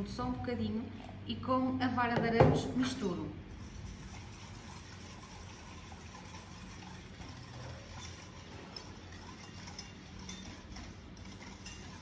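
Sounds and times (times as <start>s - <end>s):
low steady hum: 0.0s - 12.0s
whisk stirring in pot: 3.5s - 12.0s
whisk clinking against pot: 3.7s - 12.0s.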